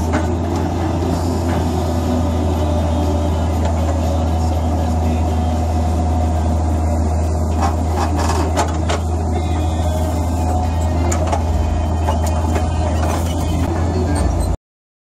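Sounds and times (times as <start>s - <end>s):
digger bucket scraping and clunking: 0.0s - 4.4s, 7.1s - 14.6s
diesel engine running under load: 0.0s - 14.6s.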